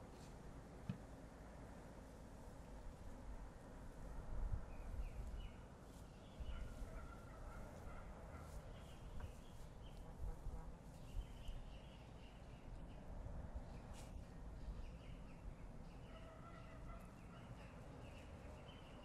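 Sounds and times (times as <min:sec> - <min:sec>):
faint bird chirping: 0:04.7 - 0:19.0.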